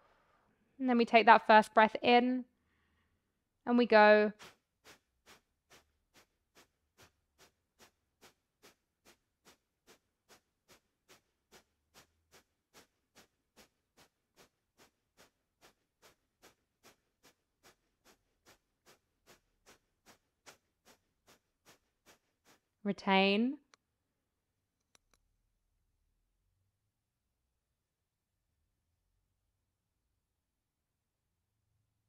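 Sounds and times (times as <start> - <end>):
sharp nasal exhales: 4.4 - 17.0.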